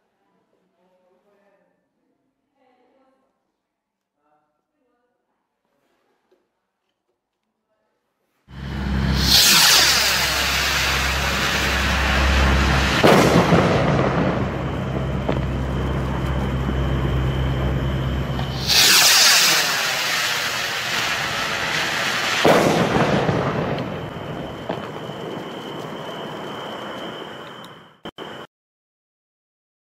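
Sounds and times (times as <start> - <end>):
firework bursting with sharp bang: 8.5 - 27.7
firework launching with hissing whoosh: 8.5 - 27.7.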